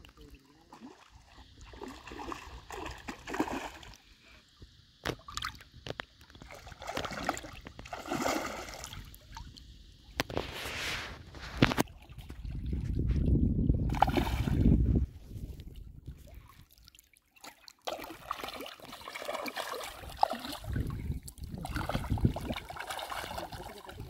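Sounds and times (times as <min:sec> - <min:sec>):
fish splashing at water surface: 0:06.3 - 0:09.1, 0:13.9 - 0:14.7, 0:17.4 - 0:20.9, 0:21.6 - 0:24.0.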